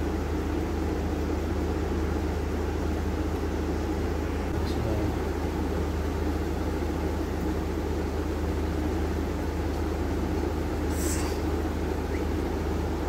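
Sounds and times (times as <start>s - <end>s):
appliance hum and whooshing air: 0.0s - 13.0s
brief high hiss: 10.9s - 11.5s.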